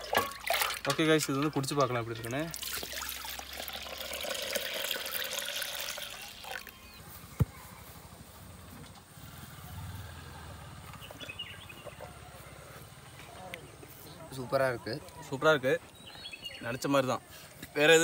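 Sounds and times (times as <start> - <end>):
juice pouring and splashing: 0.0 - 6.7.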